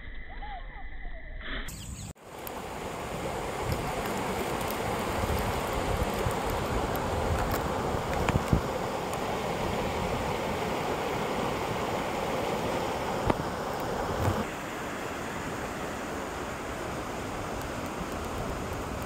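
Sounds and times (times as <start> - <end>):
wind buffeting microphone: 3.0 - 14.5.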